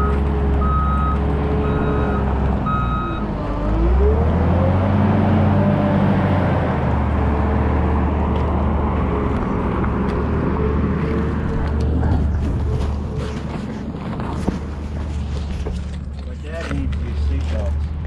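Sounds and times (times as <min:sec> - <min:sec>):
reversing alarm beeping: 0:00.0 - 0:03.3
wheel loader diesel engine: 0:00.0 - 0:18.0.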